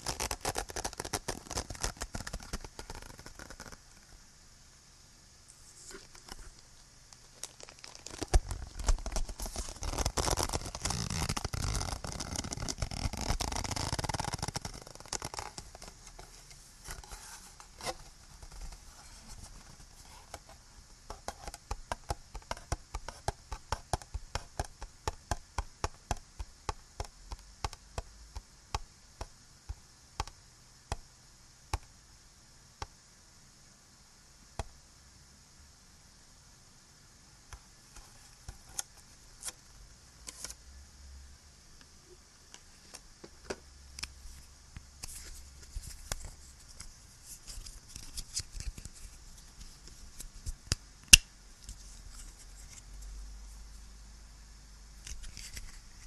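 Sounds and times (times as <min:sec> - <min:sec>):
recording hiss: 0:00.0 - 0:56.0
crinkling and scraping of objects: 0:05.6 - 0:21.4.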